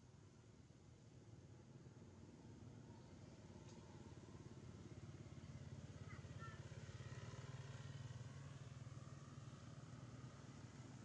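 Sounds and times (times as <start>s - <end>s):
faint vehicle engine rumble: 2.4s - 11.0s.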